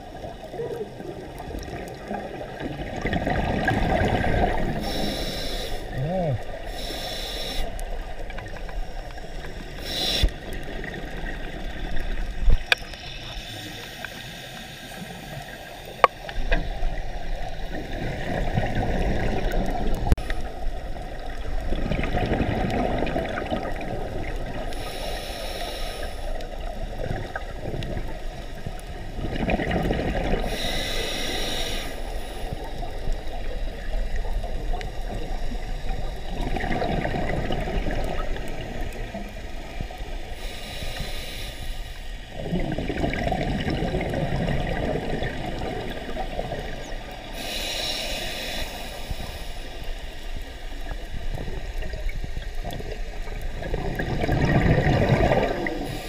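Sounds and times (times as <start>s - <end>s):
exhaled bubbles rumbling: 0.0s - 5.2s, 7.7s - 13.5s, 15.4s - 24.9s, 26.4s - 30.9s, 32.4s - 40.5s, 42.2s - 47.5s, 50.2s - 56.0s
regulator inhalation hiss: 4.6s - 8.7s, 9.7s - 10.6s, 12.8s - 16.7s, 24.7s - 26.5s, 30.4s - 34.4s, 40.2s - 42.3s, 47.2s - 50.7s, 55.8s - 56.0s.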